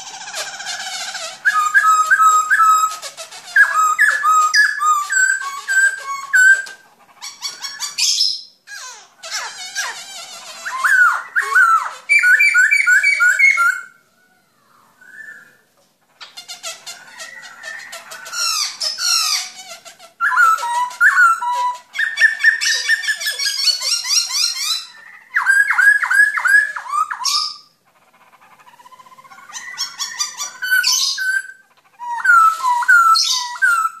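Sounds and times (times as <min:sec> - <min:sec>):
bird singing downslurred whistles: 0:01.4 - 0:03.0, 0:03.6 - 0:06.8, 0:10.6 - 0:14.0, 0:15.0 - 0:15.7, 0:20.2 - 0:27.7.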